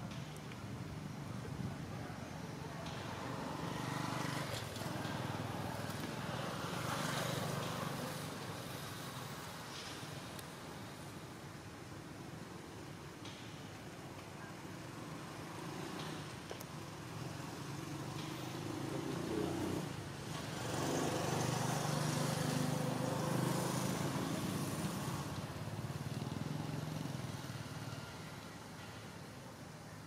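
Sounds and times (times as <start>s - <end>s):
vehicle engine passing by: 18.0s - 25.4s.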